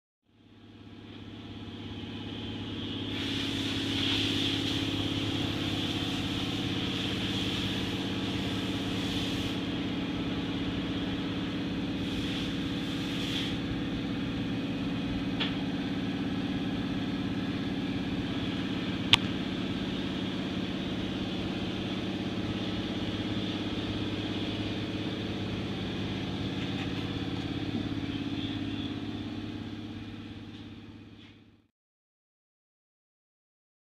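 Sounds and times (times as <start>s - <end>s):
machine hum: 0.4s - 31.6s
hiss: 3.1s - 9.8s, 12.0s - 13.8s.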